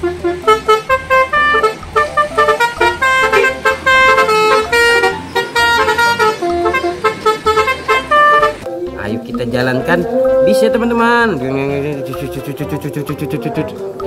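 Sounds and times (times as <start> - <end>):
bus horn playing a melody: 0.0 - 8.7.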